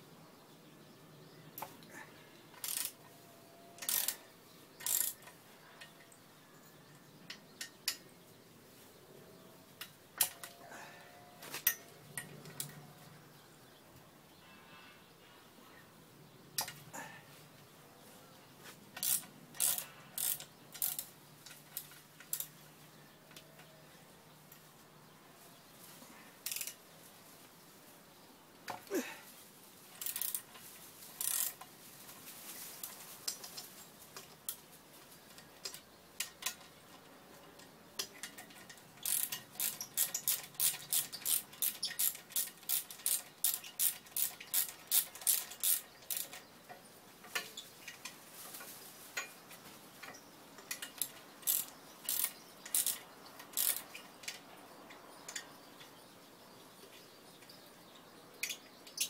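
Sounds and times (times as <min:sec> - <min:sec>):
ratchet wrench clicking: 0:02.6 - 0:03.0, 0:03.8 - 0:04.2, 0:04.8 - 0:05.3, 0:19.0 - 0:22.5, 0:26.4 - 0:26.8, 0:30.0 - 0:30.5, 0:31.2 - 0:31.6, 0:38.2 - 0:46.4, 0:50.6 - 0:54.4.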